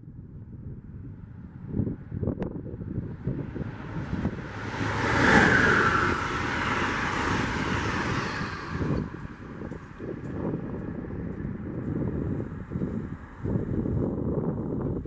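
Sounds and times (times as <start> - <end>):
train passing at speed: 3.0 - 12.7.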